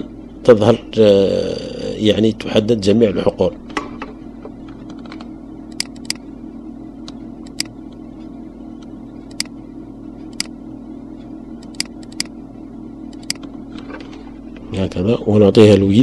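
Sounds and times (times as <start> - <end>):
steady low hum: 0.0 - 16.0
computer mouse clicking: 4.8 - 6.2, 7.0 - 8.0, 8.8 - 9.5, 10.2 - 10.5, 11.6 - 12.3, 13.1 - 13.5.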